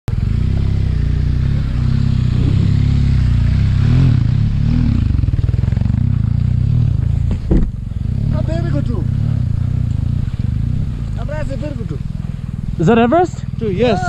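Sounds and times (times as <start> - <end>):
motorcycle engine droning: 0.1 - 14.0
loud thump: 7.2 - 7.8.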